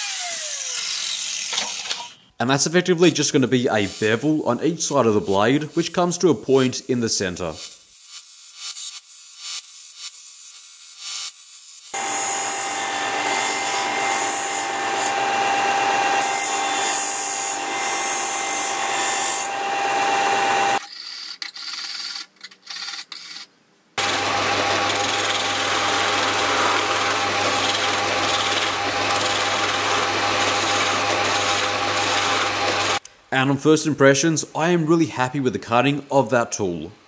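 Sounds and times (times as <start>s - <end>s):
chisel grinding on sander disc: 7.6s - 23.4s, 24.0s - 33.0s
chisel cutting spinning wood: 11.9s - 20.8s, 24.0s - 33.0s
lathe humming: 12.0s - 20.8s, 24.0s - 33.0s.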